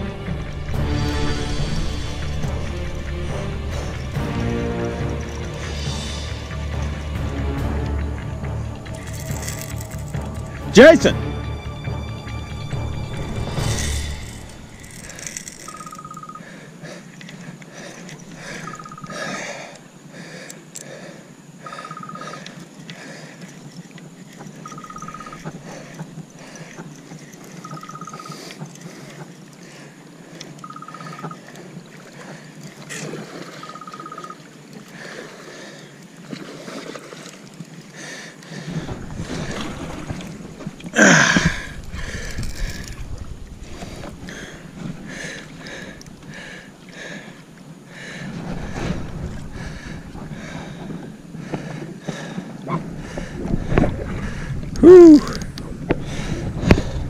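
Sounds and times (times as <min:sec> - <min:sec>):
water noise: 0:00.0 - 0:57.0
wind noise: 0:38.7 - 0:46.2, 0:52.6 - 0:57.0.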